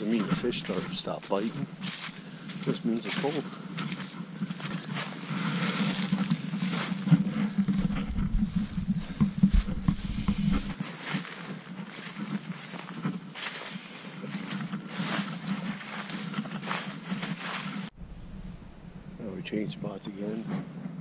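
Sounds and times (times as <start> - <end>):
steady low hum: 0.0 - 10.8, 17.6 - 21.0
wind rumbling on microphone: 0.0 - 10.8, 11.6 - 21.0
footsteps crunching through dry leaves: 0.0 - 17.9.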